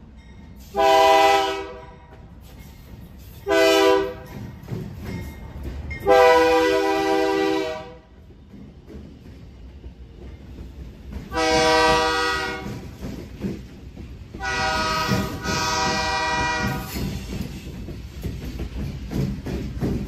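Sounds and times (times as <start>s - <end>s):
diesel locomotives rumbling: 0.0s - 20.0s
train wheels clattering on rails: 0.0s - 20.0s
train air horn blasts: 0.6s - 1.9s, 3.4s - 4.3s, 6.0s - 8.1s, 11.3s - 12.8s, 14.4s - 17.0s.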